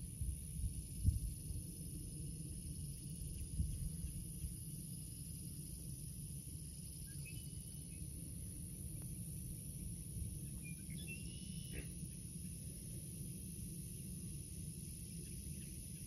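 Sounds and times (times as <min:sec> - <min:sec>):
high insect drone: 0:00.0 - 0:16.0
faint bird chirps: 0:07.0 - 0:08.1, 0:10.4 - 0:12.2.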